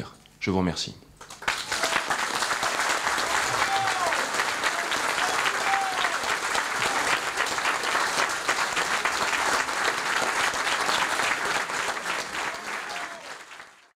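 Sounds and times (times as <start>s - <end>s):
audience applauding: 1.2s - 14.0s.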